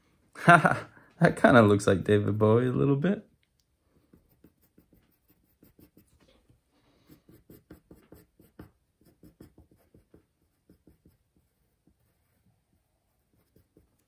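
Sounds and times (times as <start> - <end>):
pencil scratching on paper: 3.9 - 14.0.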